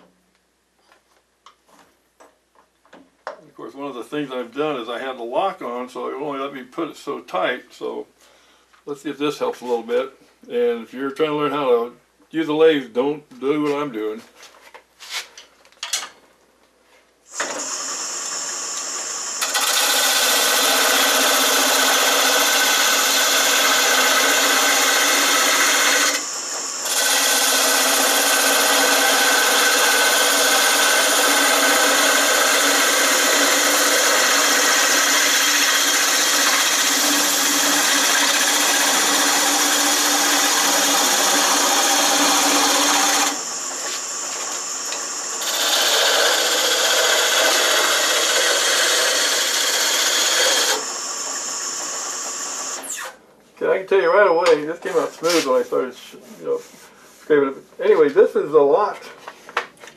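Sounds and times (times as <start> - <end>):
lathe motor humming: 17.4 - 52.8
turning tool scraping wood: 17.4 - 53.0, 54.8 - 58.2.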